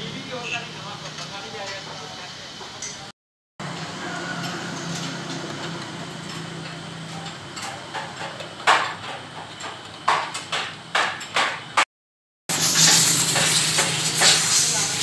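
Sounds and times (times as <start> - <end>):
metal parts and tools clanking: 4.4 - 11.7.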